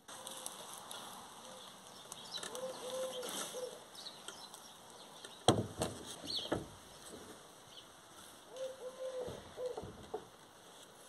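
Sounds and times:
small birds chirping: 0.0s - 9.8s
dove cooing: 2.4s - 3.9s, 8.5s - 10.1s
knocks on wooden frame: 5.5s - 6.7s.

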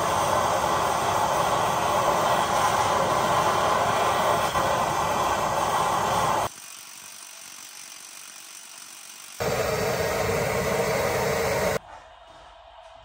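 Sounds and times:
gas torch hissing: 0.0s - 7.5s, 9.4s - 11.8s.

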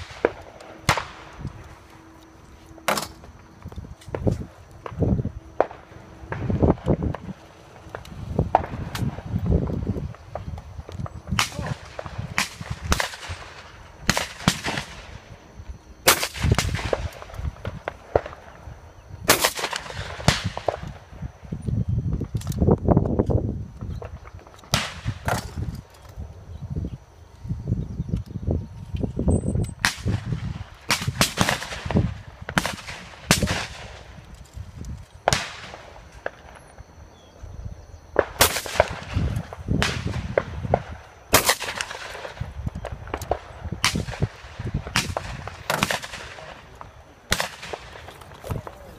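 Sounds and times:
shotgun shots: 0.0s - 1.3s, 11.3s - 15.2s, 16.0s - 18.5s, 19.2s - 20.9s, 29.8s - 34.1s, 35.3s - 36.4s, 38.2s - 42.5s, 43.1s - 48.2s.

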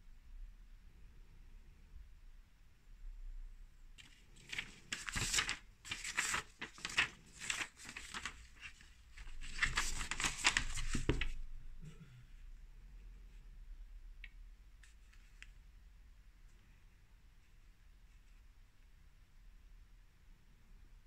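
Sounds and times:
paper wrapper crinkling: 4.0s - 11.4s.

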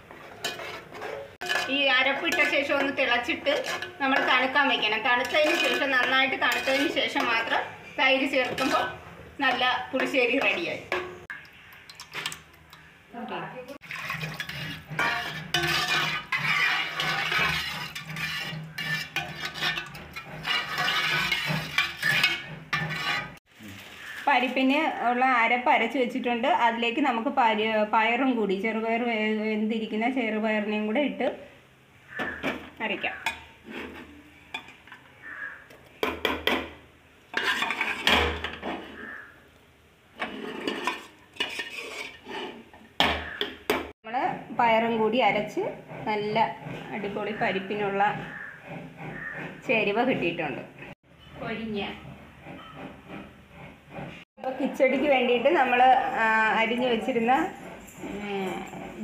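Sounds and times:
spoon scraping dishes: 0.0s - 11.3s, 13.8s - 23.4s, 32.1s - 36.7s, 37.3s - 39.2s, 40.2s - 43.6s
metal utensils clinking on pots: 0.2s - 12.5s, 13.8s - 23.4s, 32.1s - 35.1s, 37.3s - 39.0s, 40.2s - 43.5s.

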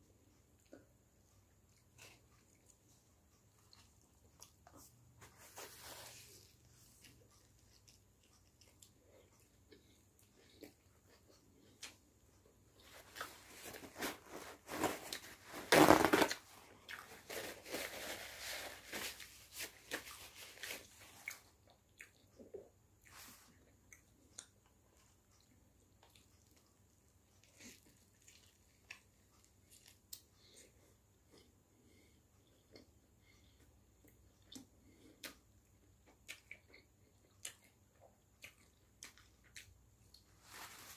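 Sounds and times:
chewing and wet smacks: 1.5s - 5.0s, 6.8s - 12.5s, 16.8s - 17.1s, 20.8s - 40.3s
paper towel ripping: 13.6s - 16.4s
paper rustling and crumpling: 17.2s - 21.1s.

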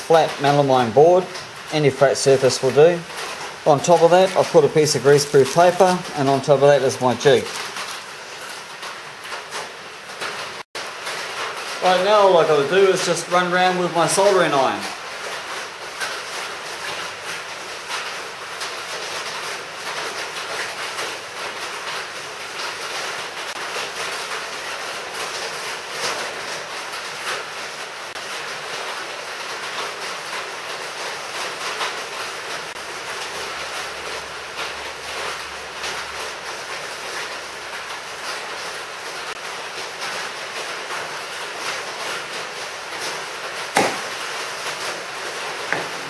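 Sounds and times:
soldering iron scratchy rustle: 2.0s - 8.6s.

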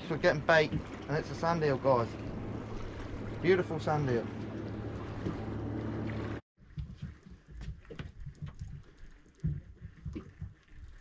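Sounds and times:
steady low hum: 0.0s - 11.0s
low knocks on a boat: 0.3s - 1.4s, 4.2s - 8.5s.

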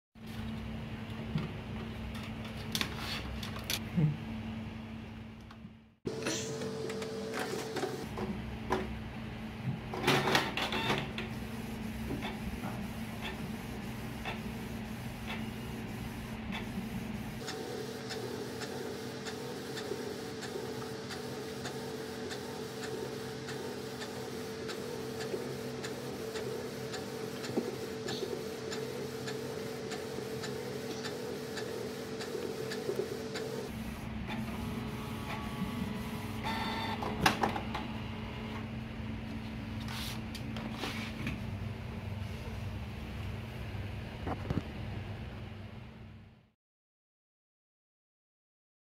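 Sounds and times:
inkjet printer running: 6.1s - 8.3s, 10.1s - 38.6s.

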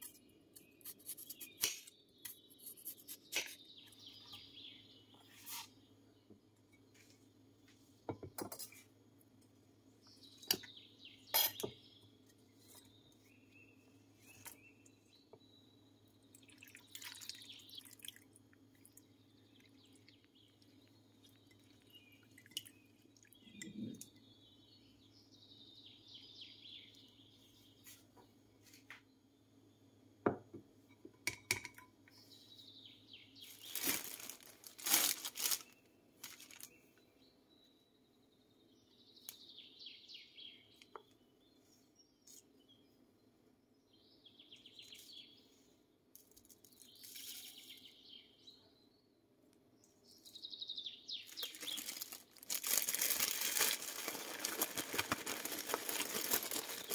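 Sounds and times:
water splashing in bowl: 16.4s - 18.3s
plastic bag crinkling: 33.5s - 36.7s, 51.3s - 56.9s.

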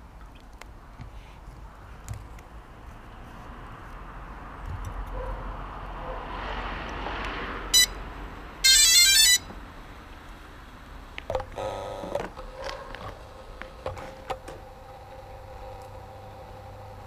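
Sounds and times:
electronic beep: 7.8s - 8.0s.

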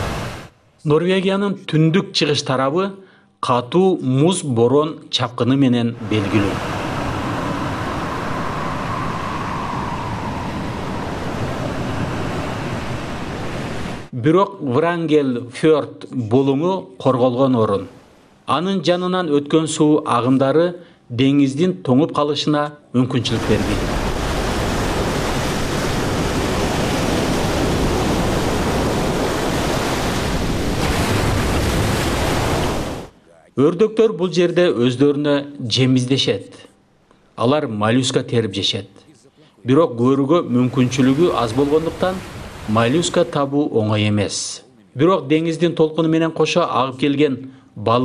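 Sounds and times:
waves breaking on rocky shore: 0.0s - 0.5s, 6.0s - 14.1s, 23.3s - 33.1s, 40.5s - 43.4s
strong wind blowing: 6.0s - 14.1s, 23.4s - 33.1s.

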